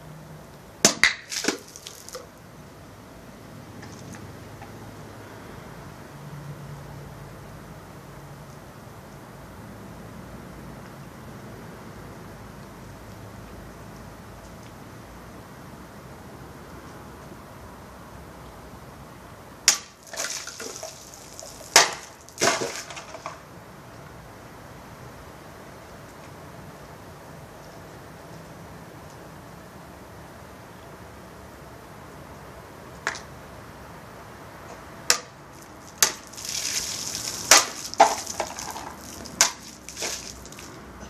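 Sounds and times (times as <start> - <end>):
water splashing on ground: 0.8 - 2.4, 19.7 - 23.4, 35.1 - 40.8
sword cutting plastic jug: 21.6 - 23.3, 36.0 - 40.4.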